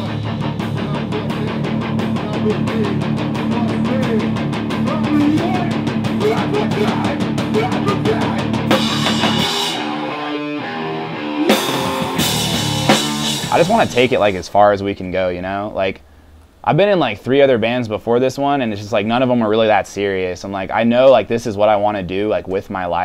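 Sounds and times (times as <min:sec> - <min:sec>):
rock band playing: 0:00.0 - 0:14.4
drum kit: 0:00.0 - 0:14.6.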